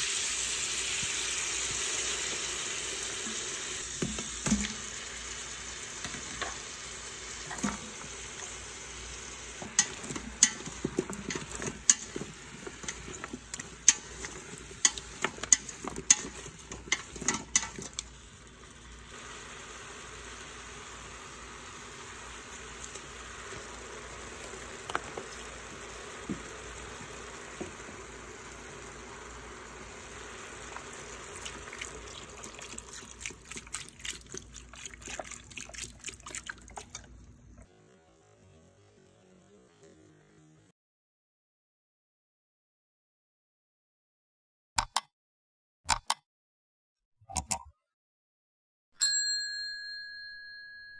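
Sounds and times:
food sizzling in a pot: 0:00.0 - 0:36.0
utensil scraping a metal pot: 0:09.6 - 0:18.1
broth pouring with a splash: 0:30.2 - 0:37.3.

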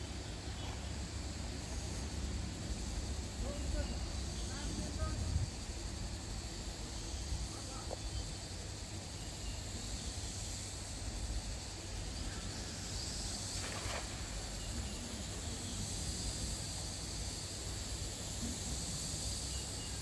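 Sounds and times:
low rumble and hiss: 0:00.0 - 0:20.0
net splashing on water: 0:13.5 - 0:14.7.

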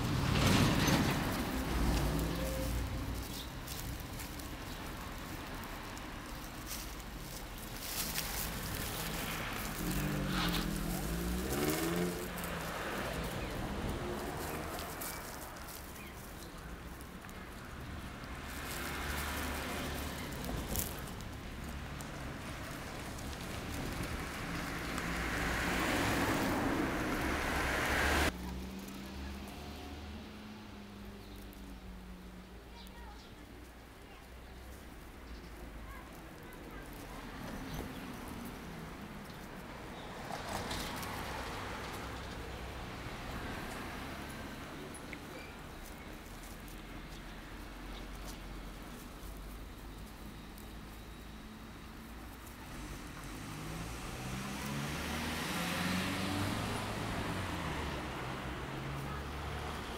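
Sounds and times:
car driving past: 0:00.0 - 0:03.9, 0:08.6 - 0:15.8, 0:18.3 - 0:30.6, 0:52.7 - 0:59.9
low rumble of road traffic: 0:00.0 - 0:59.9.

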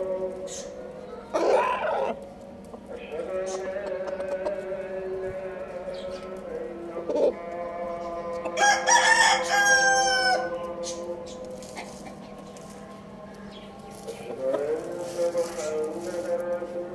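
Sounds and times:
rooster crowing: 0:08.5 - 0:10.6.

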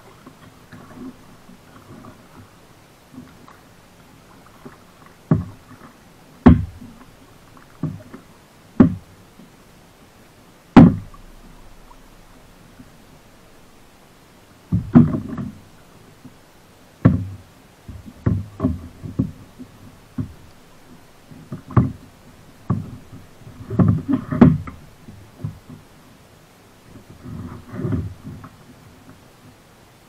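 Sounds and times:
knocks on kayak hull: 0:05.3 - 0:05.6, 0:06.4 - 0:06.9, 0:08.8 - 0:09.1, 0:10.8 - 0:11.2, 0:14.7 - 0:15.6, 0:17.0 - 0:19.4, 0:23.7 - 0:24.8.

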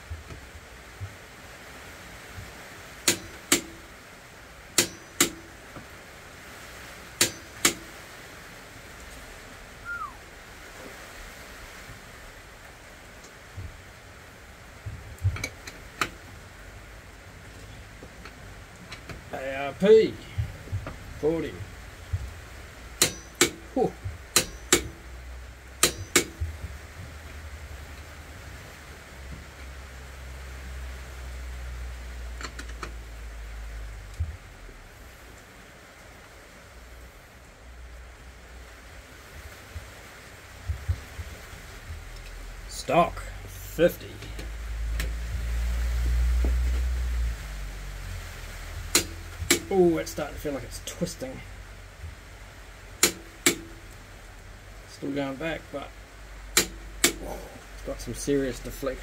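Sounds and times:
torque wrench clicking: 0:23.0 - 0:23.6, 0:24.3 - 0:25.0, 0:48.9 - 0:49.7.

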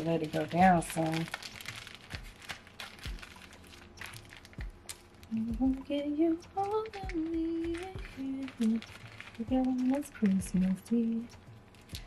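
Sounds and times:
plastic bag crinkling: 0:00.0 - 0:12.0
woman humming: 0:05.3 - 0:08.8.

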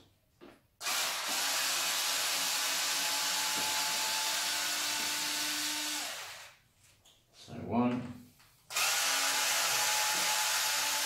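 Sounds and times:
cordless drill whining: 0:00.8 - 0:06.6, 0:08.7 - 0:11.0.

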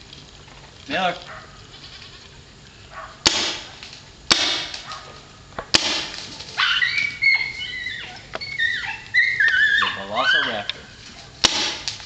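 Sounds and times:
paintball marker firing: 0:03.2 - 0:05.0, 0:05.6 - 0:06.3, 0:11.4 - 0:12.0
dog whining and yipping: 0:06.5 - 0:10.8.

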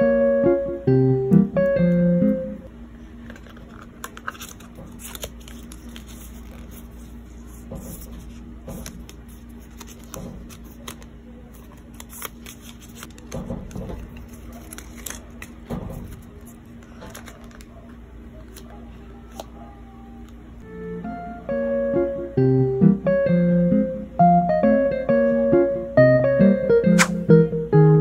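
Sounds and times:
low room hum: 0:00.0 - 0:28.0
packaging rustling: 0:03.2 - 0:07.1, 0:08.8 - 0:17.8.

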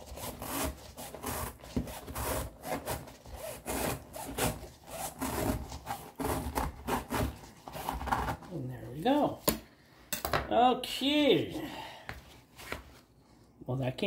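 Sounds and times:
knife sawing through filter paper: 0:00.0 - 0:08.6.

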